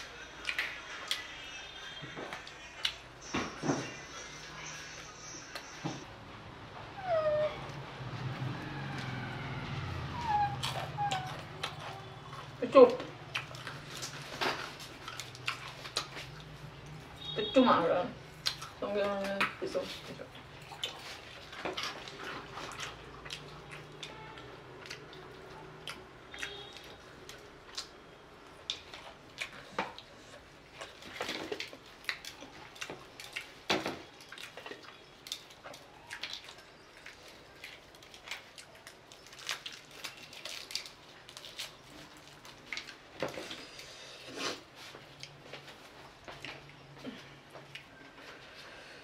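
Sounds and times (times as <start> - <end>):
chewing: 10.2 - 17.1, 18.3 - 48.8.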